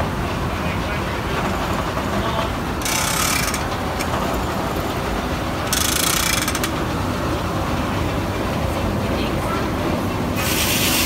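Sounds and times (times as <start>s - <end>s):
sawmill machinery rumbling: 0.0s - 11.0s
sharp mechanical clicks: 2.8s - 4.1s
loud steam hissing: 10.3s - 11.0s.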